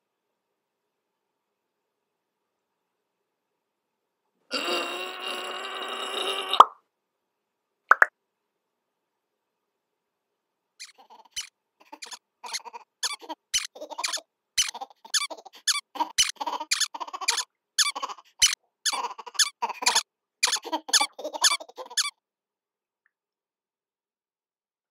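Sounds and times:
cartoon squeaks: 10.8s - 22.1s.

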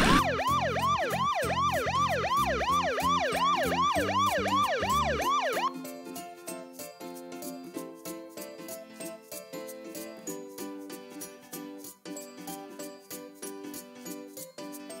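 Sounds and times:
siren-like electronic pitch sweeps: 0.0s - 5.7s
soft tinkling music: 5.7s - 15.0s.

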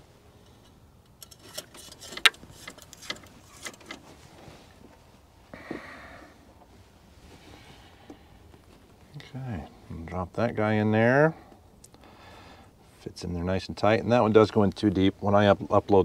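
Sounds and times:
soft rustle: 1.4s - 10.0s.

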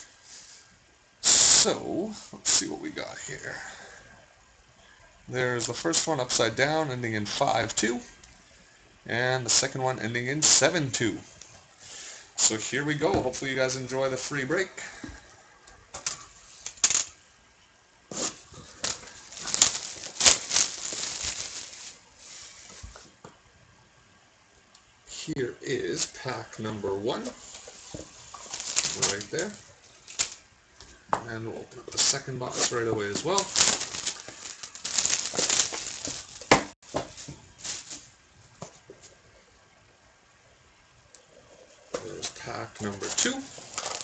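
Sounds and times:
plastic shrink-wrap crinkling: 18.1s - 23.1s, 27.2s - 30.5s, 31.9s - 38.2s, 42.2s - 44.0s
cardboard rustling: 18.1s - 23.2s, 27.3s - 30.4s, 32.0s - 38.8s, 42.8s - 44.0s.

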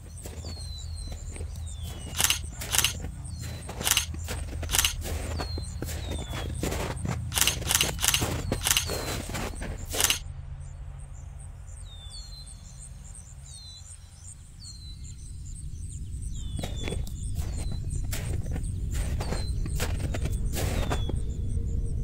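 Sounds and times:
boots crunching through snow: 0.0s - 10.2s, 16.5s - 21.2s
high falling chirps: 0.2s - 10.2s.

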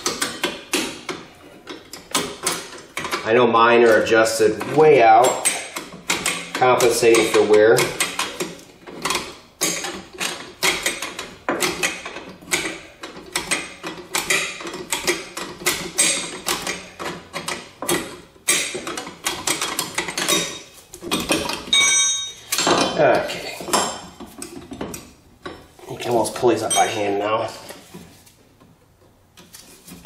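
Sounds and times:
brake shoes ringing and scraping: 19.7s - 24.4s.

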